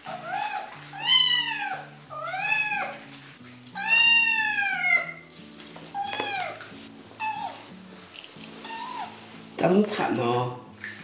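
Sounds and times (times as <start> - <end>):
soft background music: 0.0 - 11.0
kitten meowing loudly: 3.8 - 5.2.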